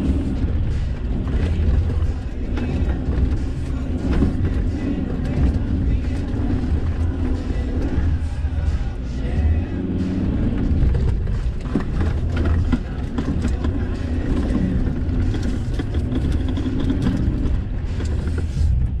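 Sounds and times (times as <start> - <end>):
knocks and rattles from bumps: 0.0 - 8.3, 10.3 - 18.6
engine and tyre rumble: 0.0 - 19.0.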